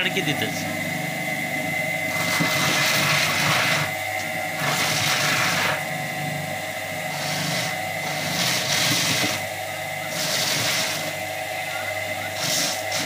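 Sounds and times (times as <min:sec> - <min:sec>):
small electric motor running: 0:00.0 - 0:13.0
harsh scraping of corn on roller: 0:02.1 - 0:06.2, 0:07.0 - 0:13.0.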